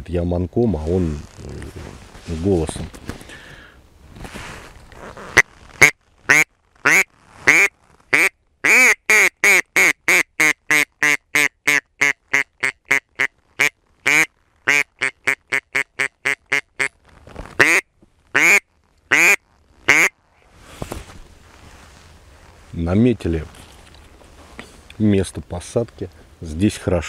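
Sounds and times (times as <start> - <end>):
duck call quacks: 5.8 - 16.9, 17.6 - 17.8, 18.4 - 20.1.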